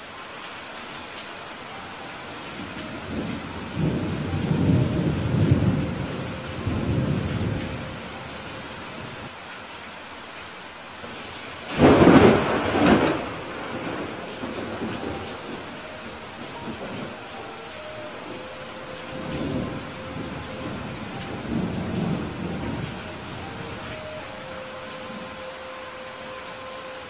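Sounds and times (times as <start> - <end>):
steady rain hiss: 0.0 - 27.0
deep rolling thunder: 3.1 - 8.2, 11.7 - 24.0
sharp thunderclap: 11.7 - 15.6.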